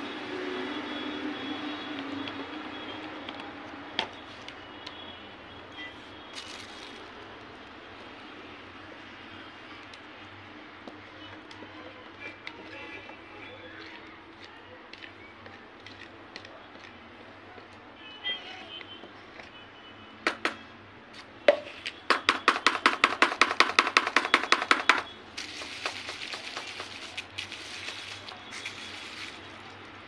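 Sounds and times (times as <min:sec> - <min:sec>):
wooden spoon knocking plastic bucket: 0:21.5 - 0:27.0
plastic bag rustling with clicks: 0:25.4 - 0:30.0.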